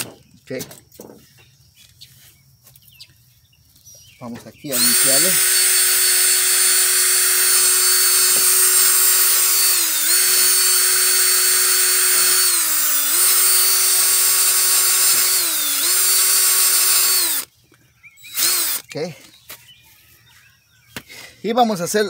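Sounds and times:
drill motor whine: 4.7 - 17.5, 18.2 - 18.9.

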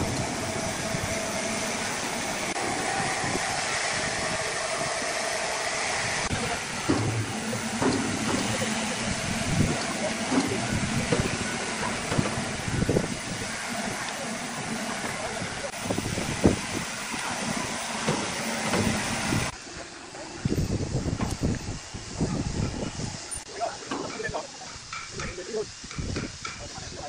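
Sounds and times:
crane hoist humming: 0.0 - 23.6
knocks and clanks: 6.3 - 13.2, 18.0 - 19.5.

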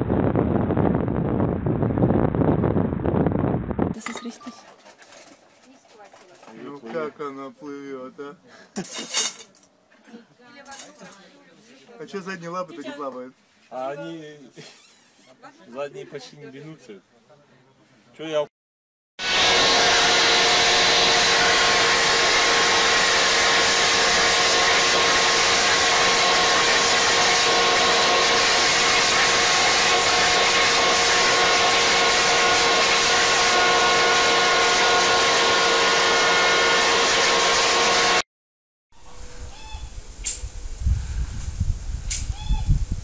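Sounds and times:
leaf blower rushing whine: 19.2 - 38.2.

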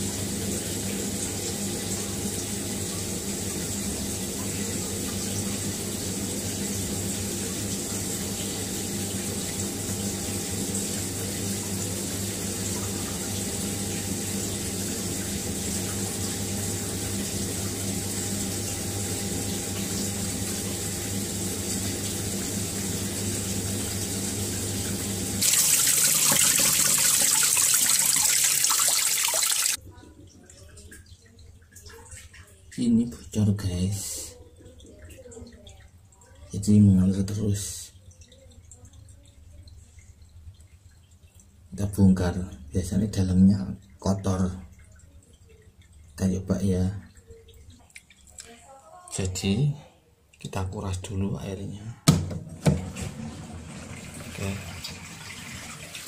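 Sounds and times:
water trickling onto tiled floor: 25.4 - 33.6, 34.3 - 37.0, 37.7 - 41.8, 42.5 - 49.2.

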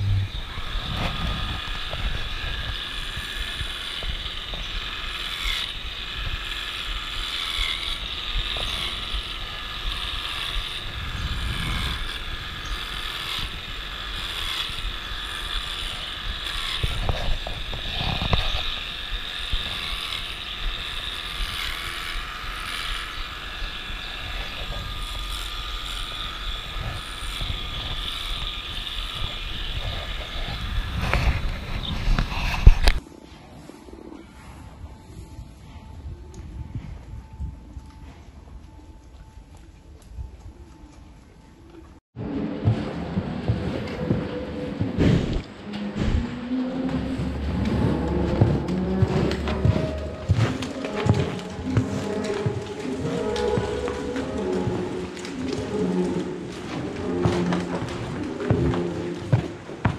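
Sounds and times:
electric clippers whining: 0.0 - 33.0, 43.8 - 59.9.

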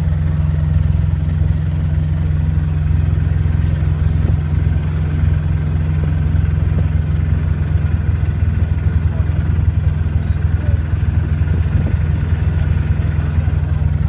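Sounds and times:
engine droning: 0.0 - 14.0.

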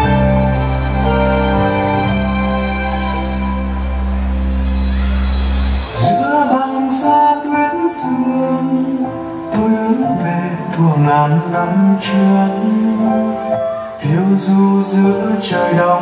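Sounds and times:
band accompaniment: 0.0 - 7.9
man singing a ballad: 6.0 - 16.0.

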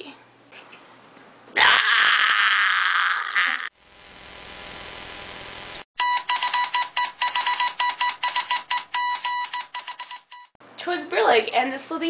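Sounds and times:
short high beeps: 6.0 - 10.6.

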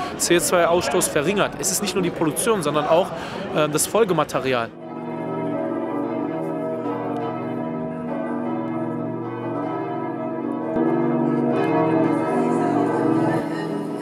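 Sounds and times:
church bells pealing: 0.0 - 3.0, 3.7 - 14.0.

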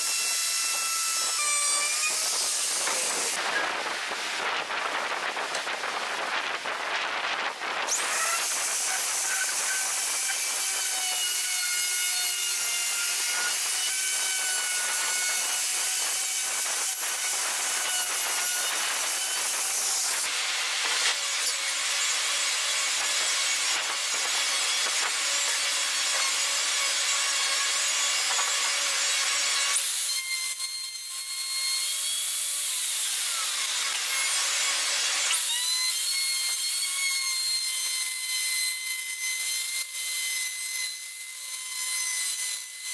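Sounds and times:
router whining: 0.0 - 4.1.

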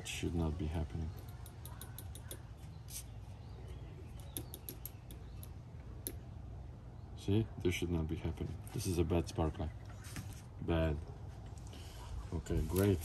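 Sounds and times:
probe tips clicking on metal: 1.1 - 2.5, 4.2 - 6.2.

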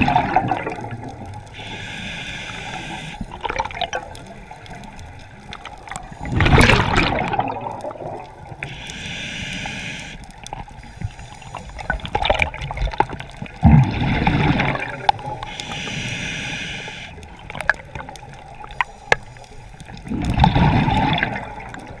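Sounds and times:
exhaled bubbles underwater: 0.0 - 8.9, 11.4 - 16.6, 17.2 - 22.0
scuba regulator inhale hiss: 1.5 - 3.4, 5.9 - 6.9, 8.6 - 12.3, 14.8 - 17.2, 18.7 - 19.8
small clicks: 7.7 - 13.7, 14.8 - 22.0.

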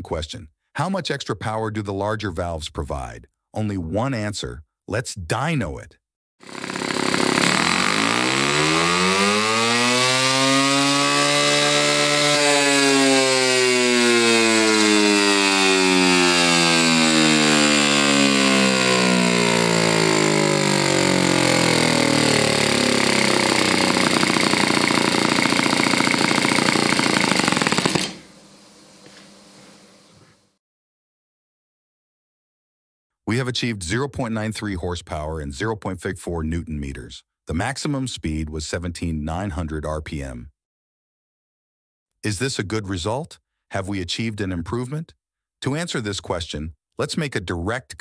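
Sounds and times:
model engine running hard: 6.4 - 28.2.

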